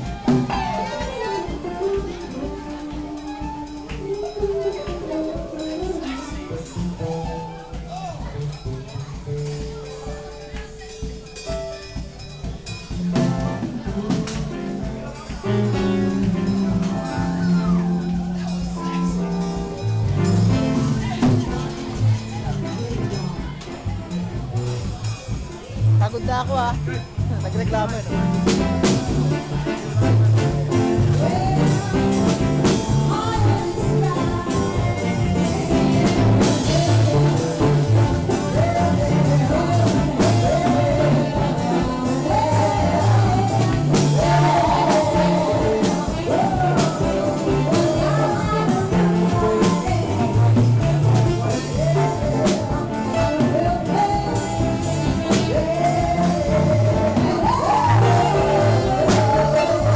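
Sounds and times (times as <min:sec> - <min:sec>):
bass guitar: 0:00.0 - 0:59.9
drums: 0:00.0 - 0:59.9
keyboards: 0:00.0 - 0:59.9
saxophone: 0:00.0 - 0:59.9
person singing: 0:29.2 - 0:59.9.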